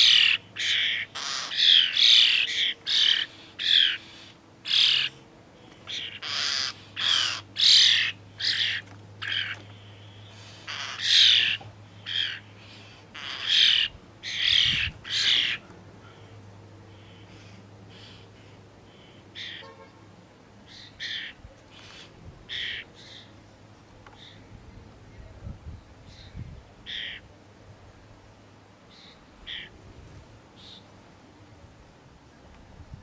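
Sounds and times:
young starlings begging squawks: 0.0s - 19.7s, 20.6s - 23.4s, 24.2s - 24.5s, 26.0s - 27.3s, 28.9s - 29.8s, 30.6s - 30.9s.

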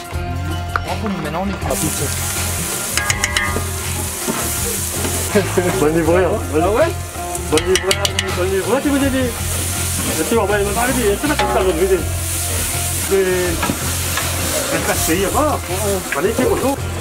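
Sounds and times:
onions sizzling in oil: 1.7s - 17.0s
paddle clicking against pot: 3.0s - 3.6s, 7.5s - 8.4s.

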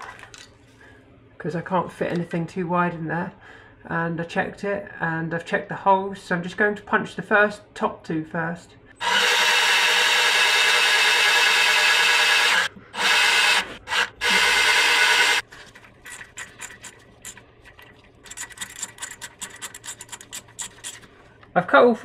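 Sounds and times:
cordless drill running: 9.0s - 15.4s.

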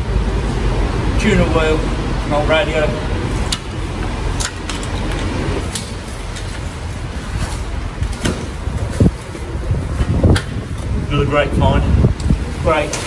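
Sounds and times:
metal clicks and knocks: 4.4s - 6.5s.

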